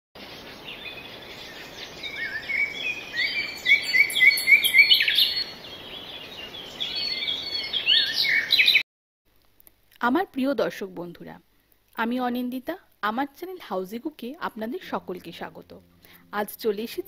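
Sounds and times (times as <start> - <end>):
small birds chirping and singing: 0.2 - 8.8.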